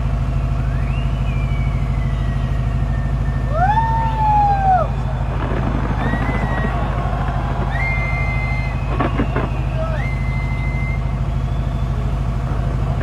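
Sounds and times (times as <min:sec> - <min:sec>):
whistling fireworks: 0:00.3 - 0:13.0
crowd rumble: 0:00.9 - 0:13.0
fireworks bursts: 0:04.8 - 0:13.0
faint crackling: 0:05.2 - 0:09.9.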